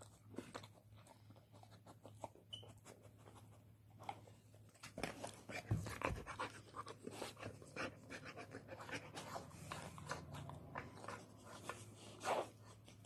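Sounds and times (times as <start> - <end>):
dog panting: 5.5 - 12.6.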